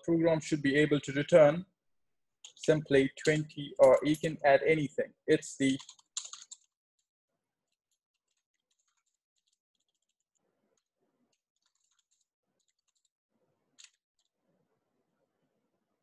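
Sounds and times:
faint keyboard keystrokes: 11.6s - 13.1s.

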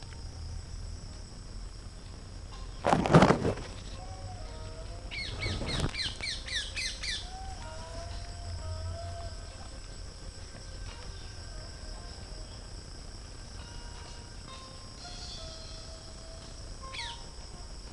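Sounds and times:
insects droning: 0.0s - 17.9s
brief rustle: 2.8s - 4.0s, 5.3s - 6.3s.

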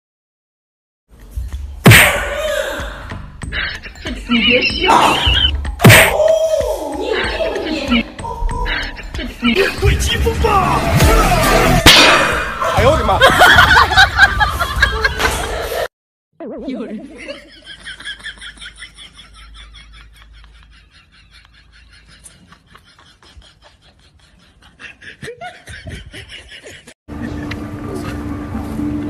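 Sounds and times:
person giggling: 3.4s - 5.7s, 19.4s - 27.5s.

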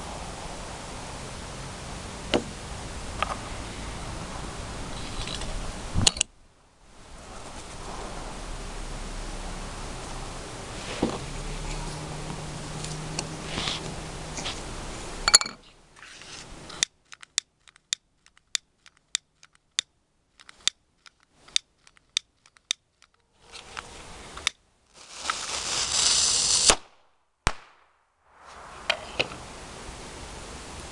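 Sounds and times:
loud hiss: 7.0s - 11.6s, 24.0s - 27.0s, 28.2s - 30.9s
small clicks and ticks: 16.8s - 23.2s
firecracker cannon bang: 26.6s - 29.2s.

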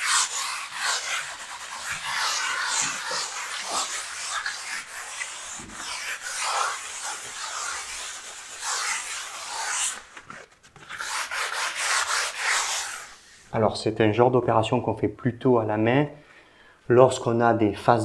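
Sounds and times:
sandpaper scratching on wall: 0.0s - 13.4s.

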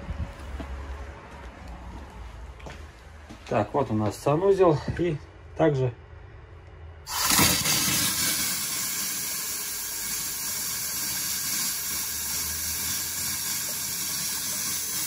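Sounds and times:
water and air rushing from faucet: 7.1s - 15.0s.

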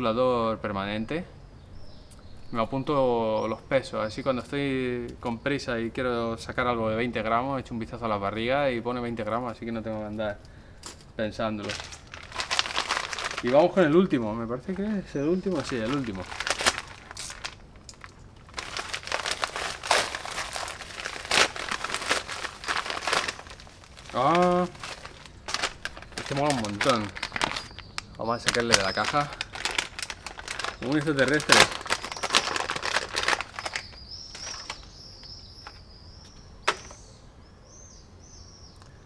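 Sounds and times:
plastic mailer bag crinkling: 11.6s - 35.8s.

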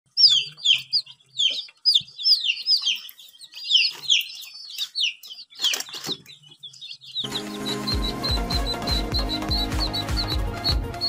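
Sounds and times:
chicks peeping: 0.1s - 11.0s.

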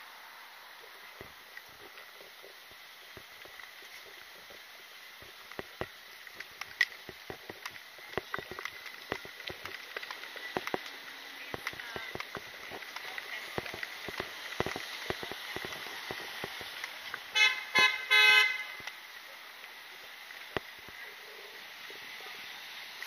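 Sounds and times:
street background noise: 0.0s - 23.0s
footsteps on pavement: 0.8s - 22.0s
carried gear rattling: 5.3s - 17.2s.

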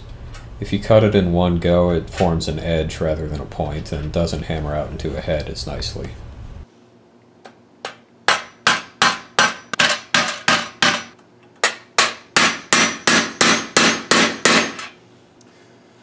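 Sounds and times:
hammer striking metal: 7.8s - 15.0s.

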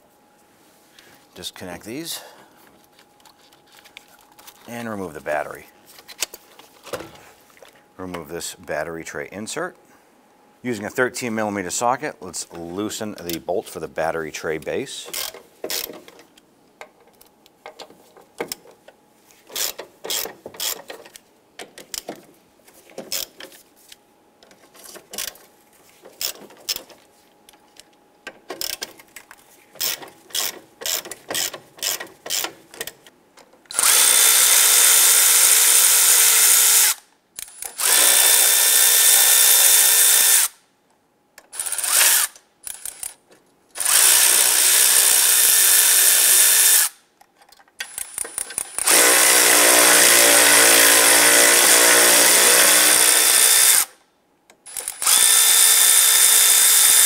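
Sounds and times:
hand ratchet clicking: 15.1s - 16.1s, 19.5s - 22.2s, 28.5s - 29.0s, 29.8s - 33.0s, 47.8s - 49.5s, 54.7s - 57.0s
power tool whirring: 33.7s - 40.6s, 41.5s - 43.2s, 43.8s - 47.0s, 47.8s - 53.9s, 54.7s - 57.0s.

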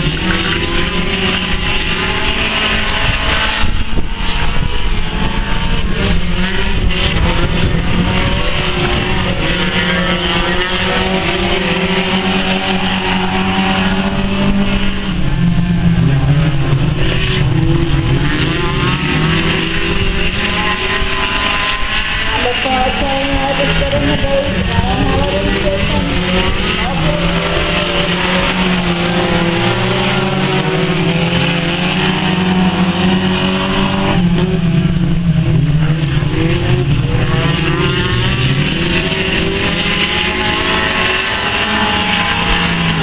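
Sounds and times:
race car engines revving: 0.0s - 43.0s.

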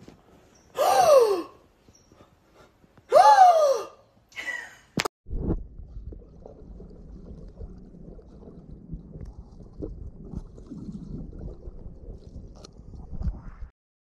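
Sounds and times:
muffled underwater rumble and gurgling: 5.3s - 13.7s.

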